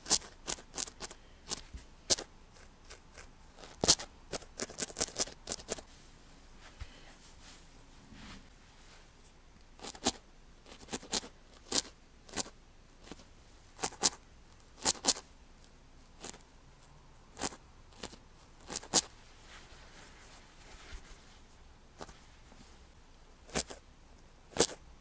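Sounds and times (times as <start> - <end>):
felting needle stabbing wool: 23.4 - 23.8, 24.5 - 24.8.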